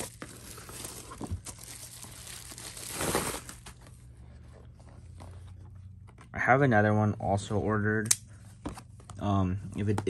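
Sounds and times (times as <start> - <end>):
bubble wrap crinkling: 0.0 - 4.0.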